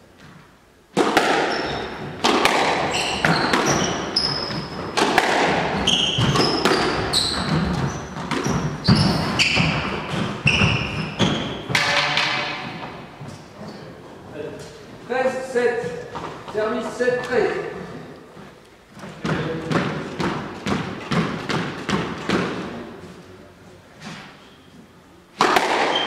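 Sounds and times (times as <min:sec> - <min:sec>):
squash ball cracking off rackets: 0:00.9 - 0:13.0, 0:25.4 - 0:26.0
sneakers squeaking on wooden floor: 0:01.3 - 0:22.4, 0:24.0 - 0:25.0, 0:25.8 - 0:26.0.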